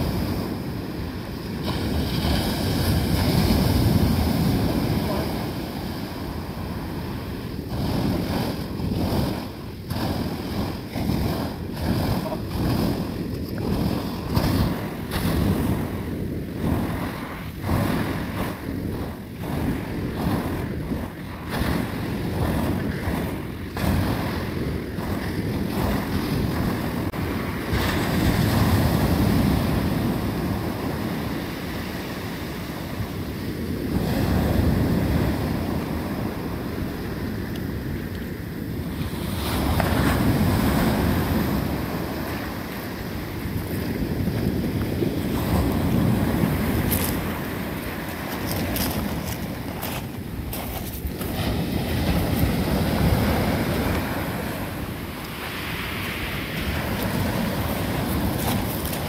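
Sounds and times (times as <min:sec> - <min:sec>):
waves breaking on shingle beach: 0:00.0 - 0:59.0
wind buffeting microphone: 0:00.0 - 0:59.0.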